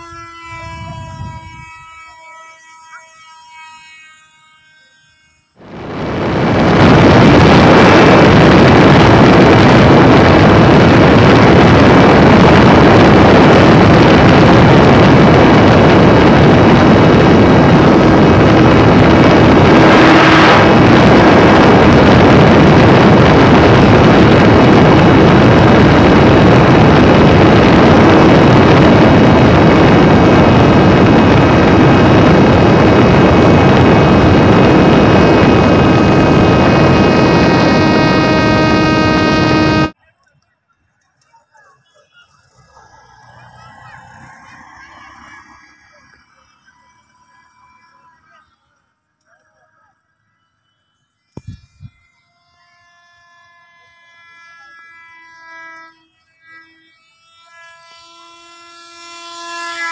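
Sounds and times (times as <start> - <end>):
wind rushing over microphone: 0.0 - 2.2, 5.5 - 40.0, 51.4 - 52.0
model plane motor whine: 0.0 - 40.0, 42.4 - 59.9.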